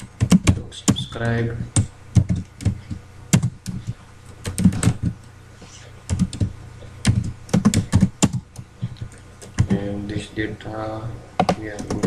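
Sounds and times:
keyboard typing: 0:00.0 - 0:05.2, 0:06.1 - 0:09.8, 0:11.4 - 0:12.0.

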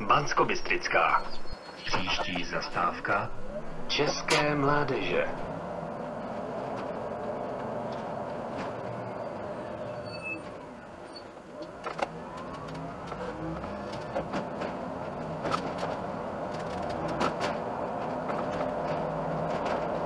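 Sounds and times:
bus engine and road noise: 0:00.0 - 0:20.0
rattles and clicks: 0:11.6 - 0:20.0.

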